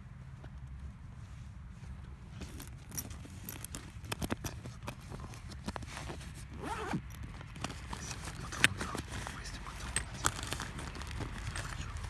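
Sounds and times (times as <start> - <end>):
clicks knocks and scraping: 2.4 - 12.0.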